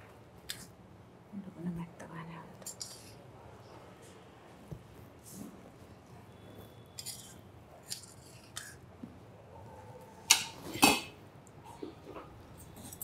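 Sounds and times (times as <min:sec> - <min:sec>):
spoon scraping rice: 0:02.6 - 0:03.2.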